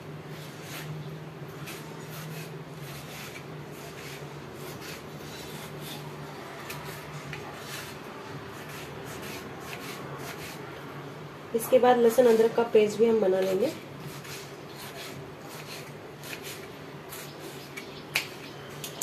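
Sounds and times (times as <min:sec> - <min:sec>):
knife cutting on wooden board: 0:08.6 - 0:10.6, 0:13.4 - 0:17.3.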